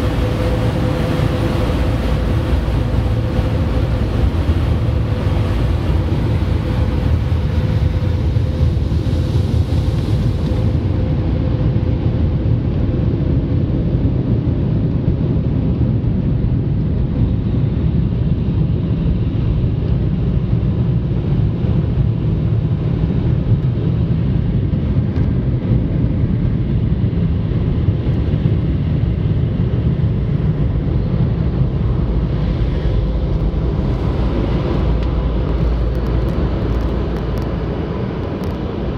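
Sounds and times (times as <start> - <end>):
car interior rumble: 0.0 - 12.9, 27.5 - 38.9.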